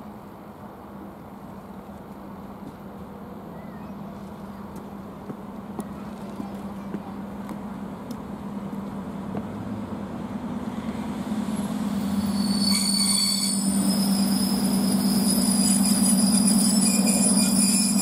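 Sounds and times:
electric train humming: 0:04.2 - 0:18.0
wheels and brakes squealing: 0:11.4 - 0:18.0.

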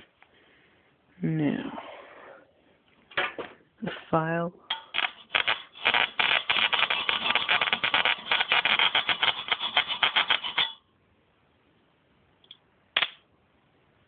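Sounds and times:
high-voltage sparks crackling: 0:04.7 - 0:10.8.

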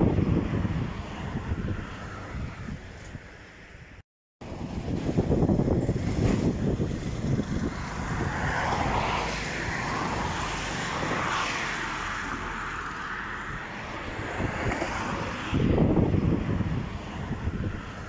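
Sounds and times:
wind buffeting microphone: 0:00.0 - 0:18.0
vehicle passing by: 0:04.4 - 0:18.0.

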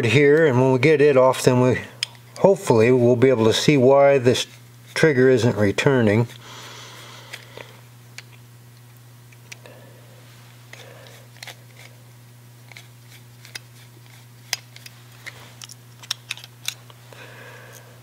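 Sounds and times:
steady low hum: 0:00.0 - 0:18.0
screwdriver metal clicks and scrapes: 0:10.7 - 0:11.9, 0:12.7 - 0:17.0.

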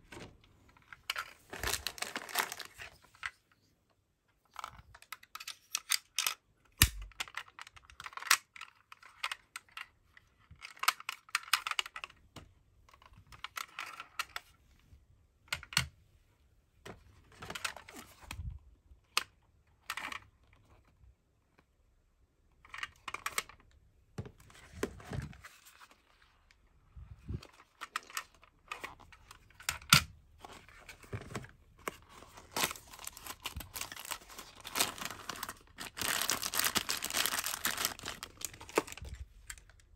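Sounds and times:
cardboard box and plastic rustling: 0:00.1 - 0:03.4, 0:27.2 - 0:39.9.

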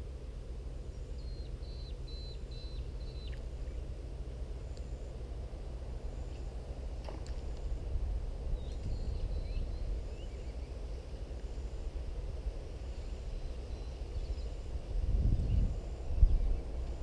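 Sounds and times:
low outdoor rumble: 0:00.0 - 0:17.0
bird chirps: 0:00.8 - 0:03.8, 0:08.6 - 0:10.8.

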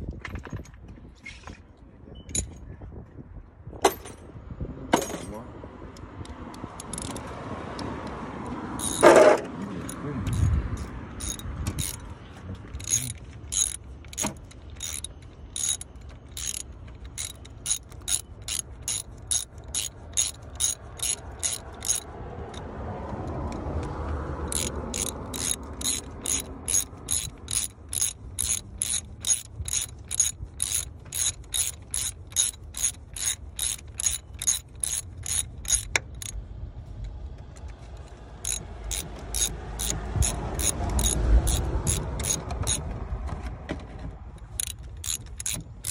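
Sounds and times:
ratchet wrench clicking: 0:05.9 - 0:36.4, 0:37.0 - 0:42.9, 0:44.3 - 0:45.9.

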